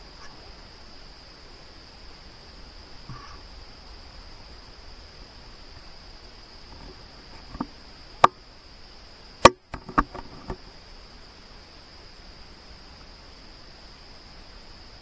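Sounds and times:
high insect drone: 0:00.0 - 0:15.0
sharp clicks and knocks: 0:09.4 - 0:10.6.

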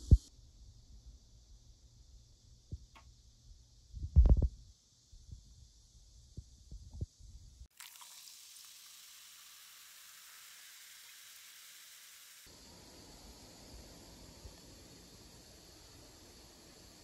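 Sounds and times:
fried rice sizzling in a pan: 0:07.7 - 0:17.0.

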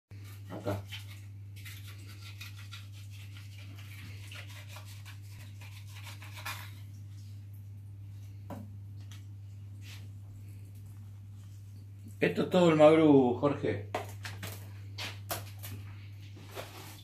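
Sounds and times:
knife scraping fish on board: 0:00.2 - 0:06.8.

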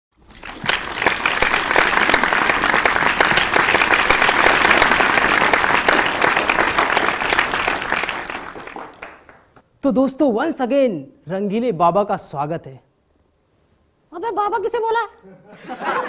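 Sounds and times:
audience applauding: 0:00.2 - 0:09.6.

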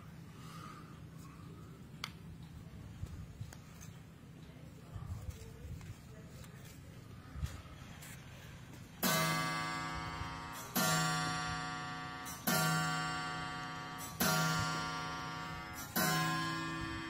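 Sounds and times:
ringing instrumental chord: 0:09.0 - 0:17.0.

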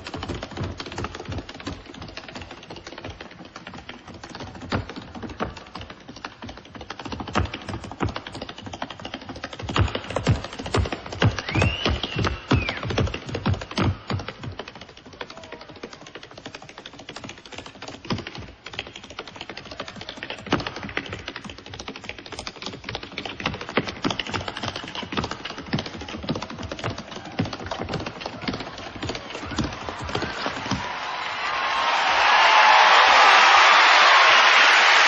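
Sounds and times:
tap shoes clicking: 0:00.0 - 0:31.0.

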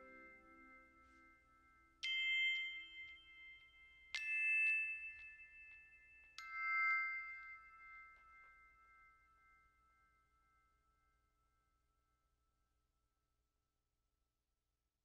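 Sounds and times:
bell-like struck notes: 0:00.0 - 0:10.8.

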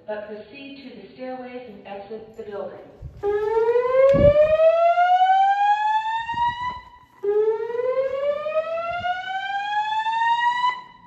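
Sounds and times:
rising whoop alarm tone: 0:03.3 - 0:11.0.

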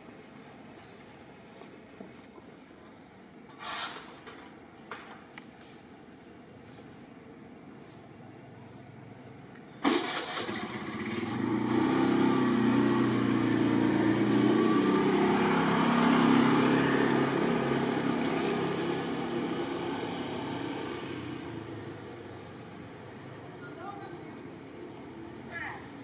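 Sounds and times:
vehicle engine passing: 0:09.8 - 0:26.0.

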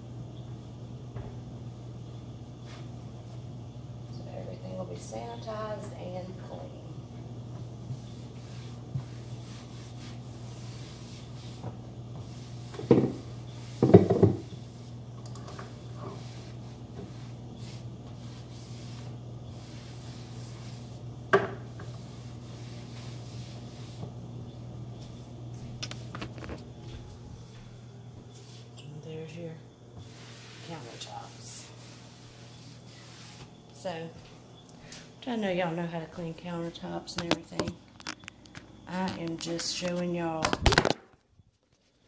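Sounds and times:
steady low hum: 0:00.0 - 0:41.6
rag wiping countertop: 0:02.6 - 0:03.4, 0:07.5 - 0:28.7, 0:30.0 - 0:34.4.

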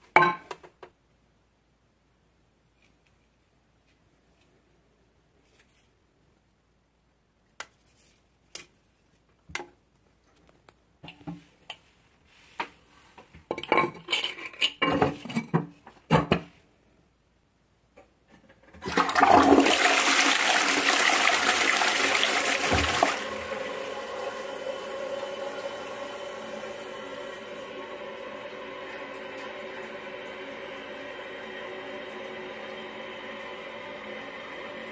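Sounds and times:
toilet flushing: 0:18.8 - 0:34.9.

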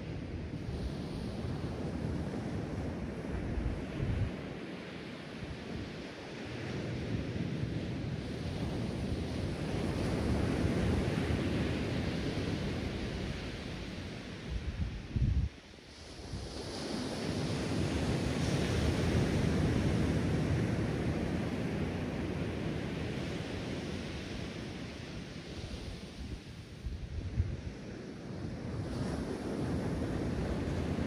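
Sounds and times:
wind gusts on microphone: 0:00.0 - 0:31.0.

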